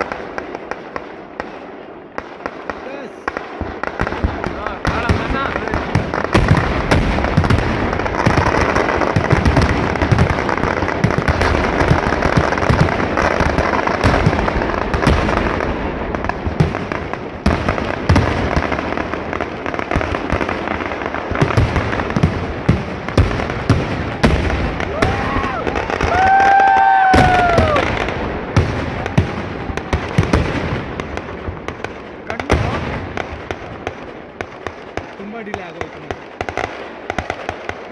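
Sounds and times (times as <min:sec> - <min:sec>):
fireworks and firecrackers banging: 0:00.0 - 0:37.9.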